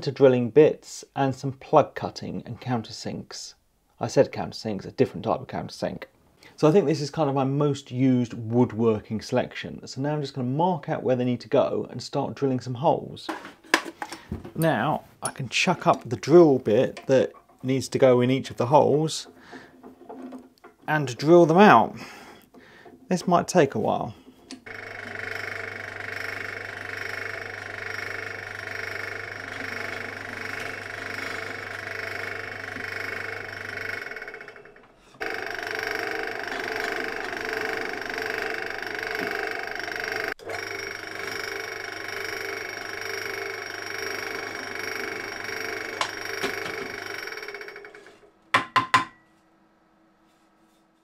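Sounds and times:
pillar drill motor whine: 0:24.5 - 0:48.3.

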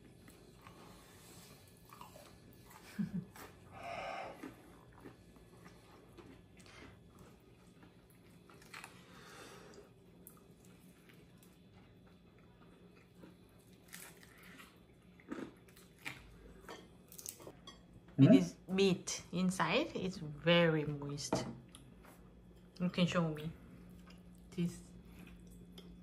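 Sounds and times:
person chewing crispy food: 0:00.2 - 0:17.6.

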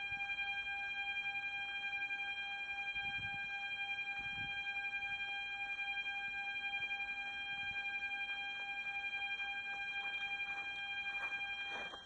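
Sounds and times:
steady pulsing whine: 0:00.0 - 0:12.0.

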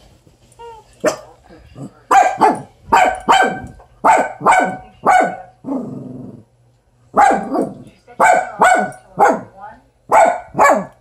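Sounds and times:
dog barking: 0:02.1 - 0:05.5, 0:07.1 - 0:09.5, 0:10.1 - 0:11.0
dog growling: 0:05.6 - 0:06.6.

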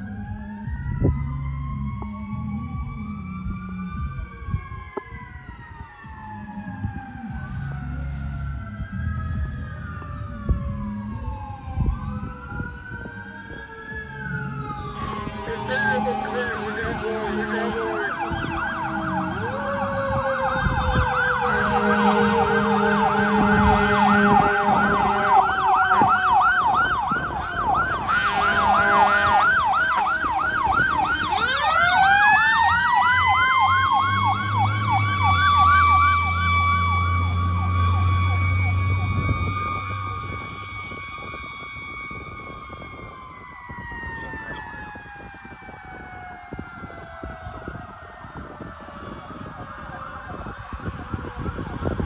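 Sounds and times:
truck engine rumbling: 0:00.0 - 0:45.2
fire truck siren: 0:00.0 - 0:52.0
second siren tone falling: 0:00.6 - 0:46.6
air horn blasts: 0:15.3 - 0:19.1, 0:21.4 - 0:26.1, 0:28.0 - 0:29.7.

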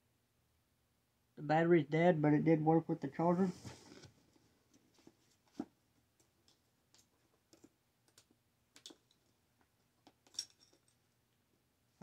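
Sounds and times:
faint clicks and handling noises: 0:03.7 - 0:11.5.

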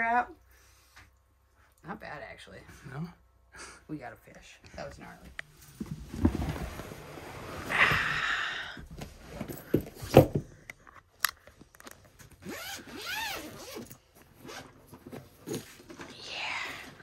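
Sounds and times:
bag zipper pulled open: 0:12.4 - 0:14.8.

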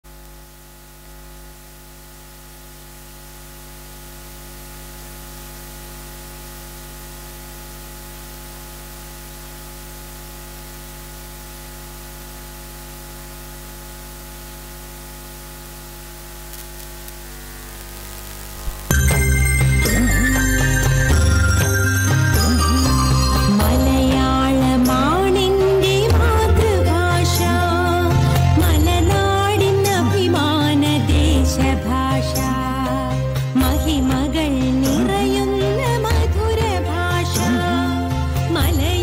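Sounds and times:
electrical mains hum with hiss: 0:00.1 - 0:33.9
sharp click: 0:16.4 - 0:17.2.

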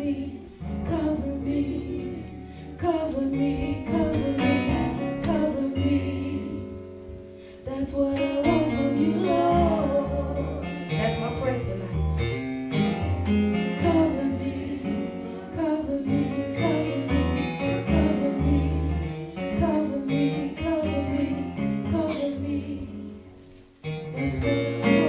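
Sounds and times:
bass line: 0:00.0 - 0:23.3
guitar: 0:00.0 - 0:25.0
person singing: 0:07.6 - 0:11.5, 0:13.8 - 0:23.2, 0:24.0 - 0:25.0.

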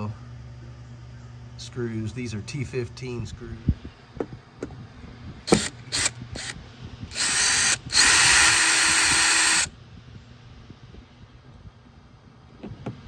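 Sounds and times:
cordless drill running: 0:05.5 - 0:09.7.

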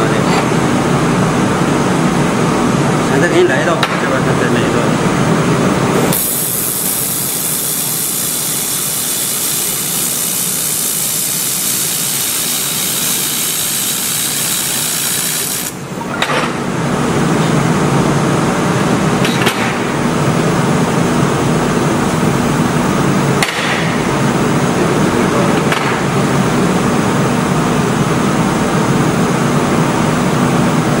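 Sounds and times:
welding machine hum: 0:06.0 - 0:16.0
laser welding hiss: 0:06.1 - 0:15.9.

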